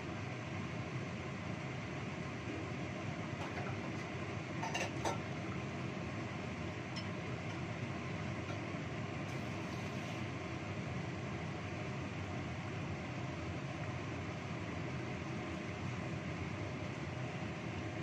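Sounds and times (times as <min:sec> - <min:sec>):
wok simmering: 0:00.0 - 0:18.0.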